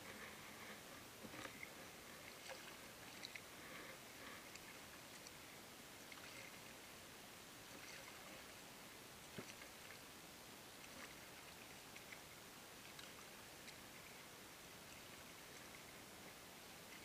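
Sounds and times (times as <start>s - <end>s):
steady hiss: 0.0s - 17.0s
kayak splashes and drips: 1.2s - 5.4s, 6.0s - 6.8s, 7.7s - 8.6s, 9.2s - 10.0s, 10.7s - 14.3s.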